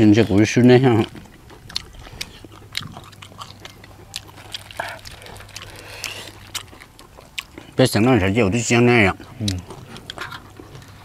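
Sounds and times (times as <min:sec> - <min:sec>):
chewing and crunching: 0:00.0 - 0:11.0
faint low hum: 0:00.0 - 0:11.0
wet mouth noises: 0:00.9 - 0:07.8.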